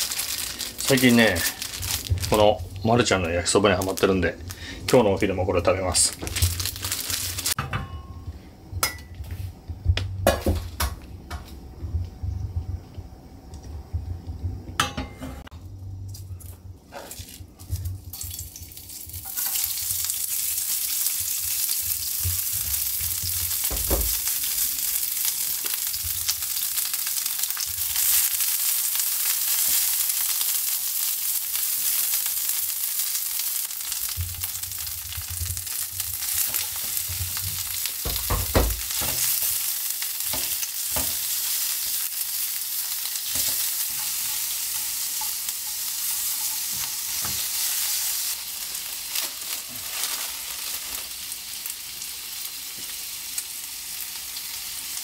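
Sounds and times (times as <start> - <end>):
vegetables sizzling in a frying pan: 0.0 - 7.6, 16.9 - 55.0
kitchen clicks and knocks: 14.8 - 15.5.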